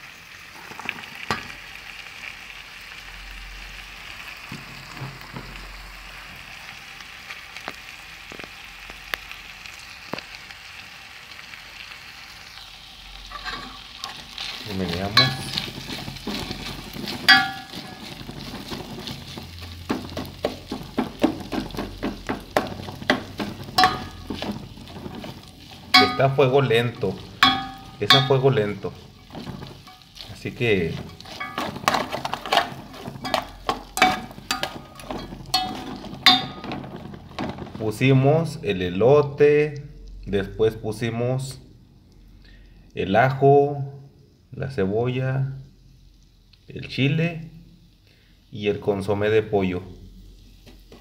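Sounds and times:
vegetables sizzling in a pot: 0.0s - 51.0s
plastic spoon scraping a pot: 13.3s - 27.2s, 28.0s - 37.8s.

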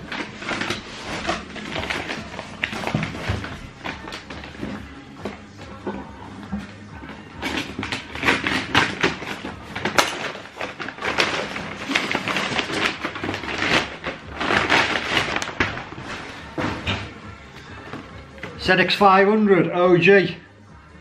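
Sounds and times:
cardboard rustling and crinkling: 0.0s - 5.8s, 6.5s - 17.2s.

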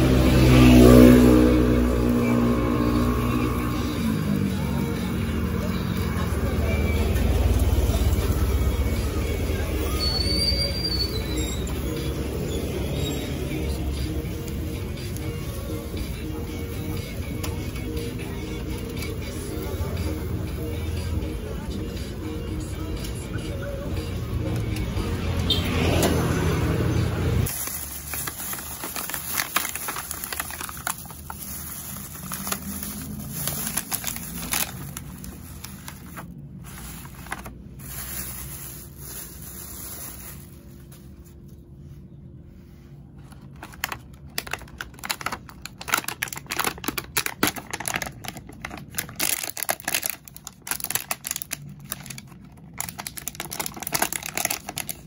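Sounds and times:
music: 0.0s - 41.0s
busy market noise: 0.0s - 55.0s
plastic lids crinkling and clicking: 43.3s - 55.0s.

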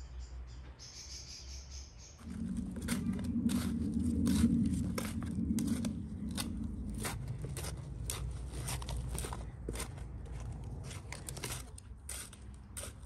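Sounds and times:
low rumble: 2.2s - 11.9s
short scraping strokes: 2.2s - 13.0s.

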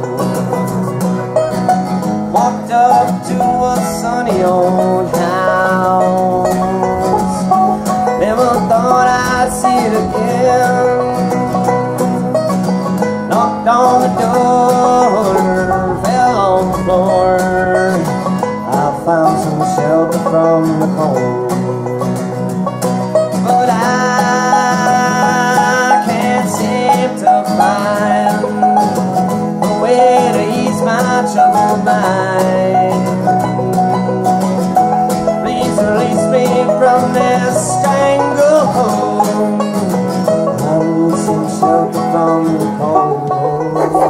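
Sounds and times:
banjo and acoustic guitar bluegrass: 0.0s - 44.0s.

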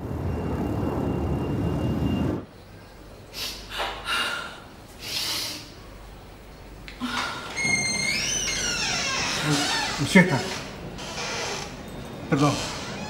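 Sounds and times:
dense low background noise: 0.0s - 13.0s
person breathing: 3.4s - 5.6s.

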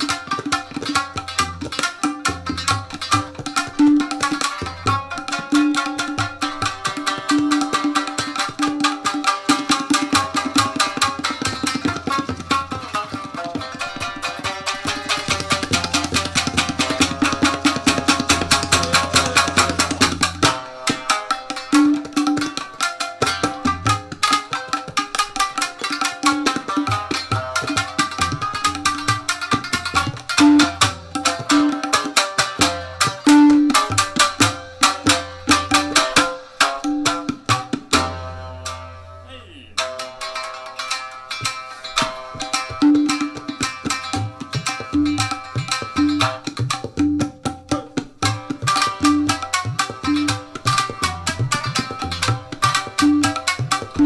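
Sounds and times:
hand drum strokes: 0.0s - 25.2s
plucked string notes: 0.0s - 54.0s
quick tabla strokes: 0.0s - 54.0s.

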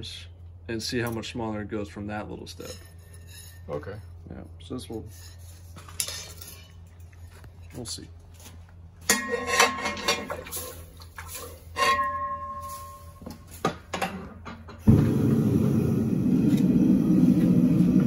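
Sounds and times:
metal clang ringing: 9.1s - 10.3s, 11.8s - 13.3s
forge burner roaring: 14.8s - 18.0s.

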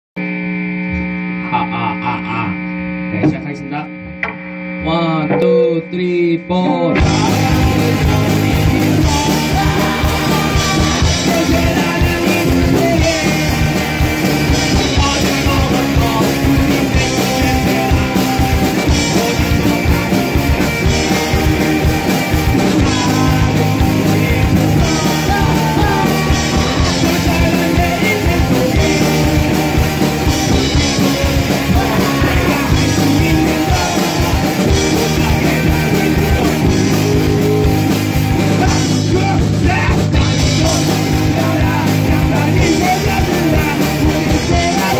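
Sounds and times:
vocals singing: 4.8s - 44.9s
punk rock band playing: 5.4s - 44.9s.

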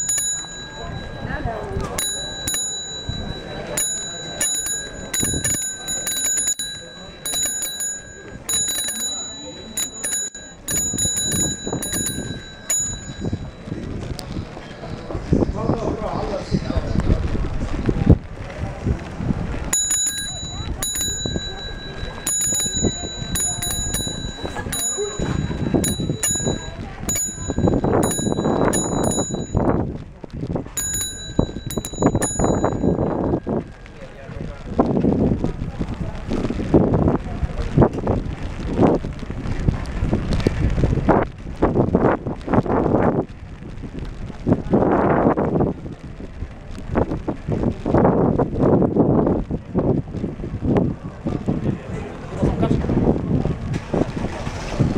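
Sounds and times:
bicycle bell ringing: 0.0s - 14.1s, 19.7s - 30.0s, 30.7s - 35.0s.

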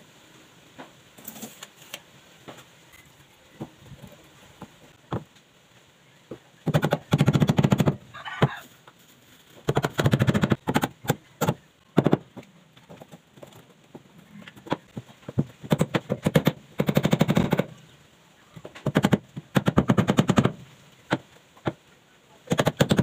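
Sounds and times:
hammer driving nails into wood: 9.6s - 12.5s, 14.6s - 17.7s, 18.8s - 21.8s, 22.5s - 23.0s.

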